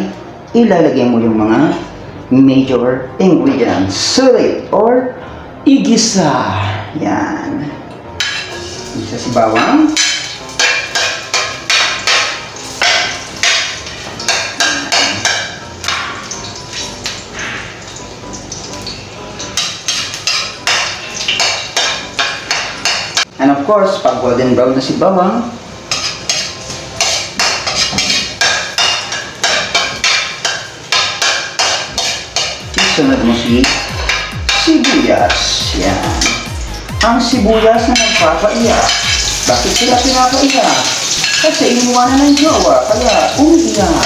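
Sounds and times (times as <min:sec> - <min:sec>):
metal spatula scraping wok: 0:08.2 - 0:17.8, 0:25.9 - 0:36.8, 0:37.9 - 0:44.0.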